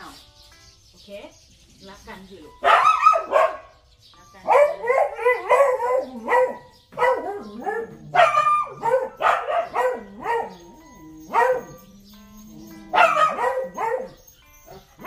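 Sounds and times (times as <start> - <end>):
dog barking: 2.6 - 3.8, 4.4 - 11.9, 12.9 - 15.0.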